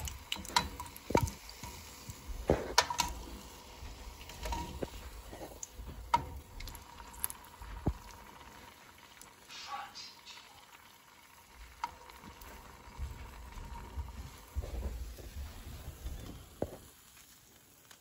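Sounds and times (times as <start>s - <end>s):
metal tongs clicking against pan: 0.0s - 1.8s, 2.8s - 3.2s
batter deep-frying in hot oil: 0.0s - 18.0s.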